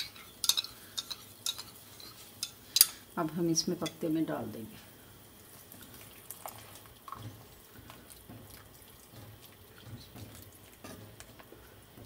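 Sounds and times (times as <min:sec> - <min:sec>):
gravy bubbling: 0:05.2 - 0:12.0.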